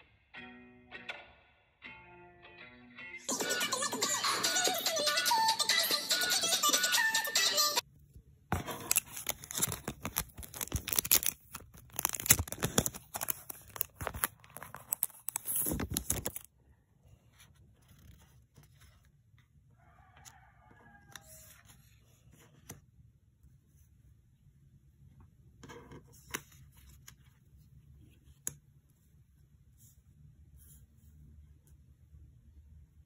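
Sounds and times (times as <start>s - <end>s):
plastic sleeve crinkling: 8.7s - 16.5s.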